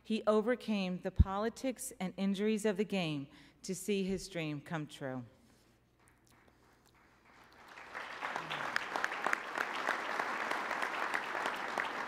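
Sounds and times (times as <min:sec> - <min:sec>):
audience applauding: 0:06.9 - 0:12.0.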